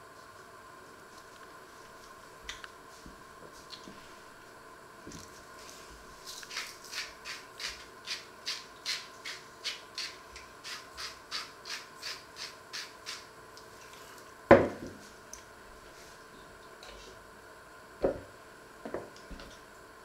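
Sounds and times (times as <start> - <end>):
spice mill grinding: 6.3 - 13.3.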